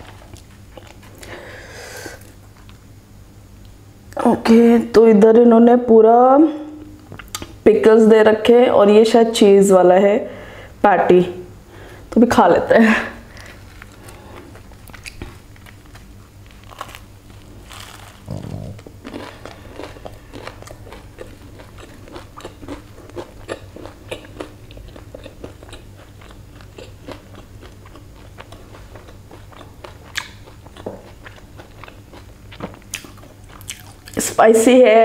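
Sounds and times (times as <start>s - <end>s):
person crunching and chewing: 0.0s - 1.3s, 13.3s - 34.3s.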